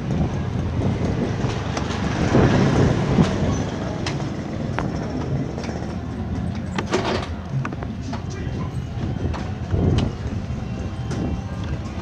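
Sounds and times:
motor scooter passing: 0:00.0 - 0:06.4.

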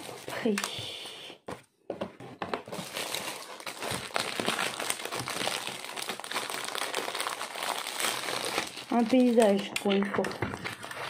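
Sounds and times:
plastic packaging crinkling: 0:00.0 - 0:01.1, 0:02.5 - 0:11.0.

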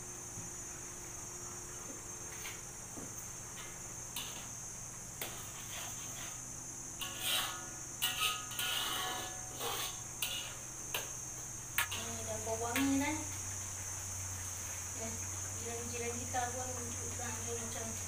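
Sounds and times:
steady high-pitched hiss: 0:00.0 - 0:18.0
metal ladle scraping a wok: 0:05.2 - 0:06.4, 0:07.0 - 0:10.7.

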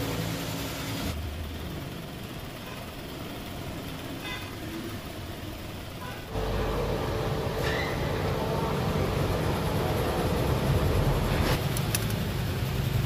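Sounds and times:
metal lathe running: 0:06.3 - 0:11.5.

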